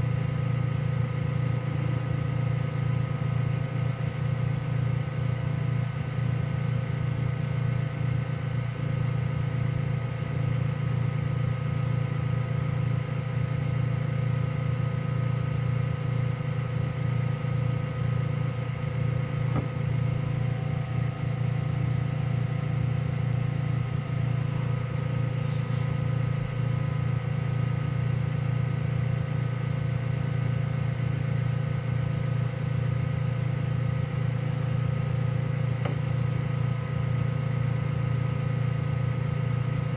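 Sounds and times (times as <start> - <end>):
laser cutter fans humming: 0.0 - 39.9.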